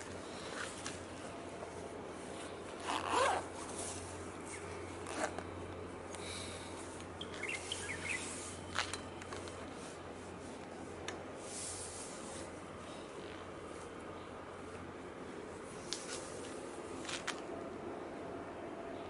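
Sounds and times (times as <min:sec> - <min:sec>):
steady low hum: 0:00.0 - 0:19.0
faint chirps: 0:07.2 - 0:08.8
brief rustle: 0:15.8 - 0:17.5.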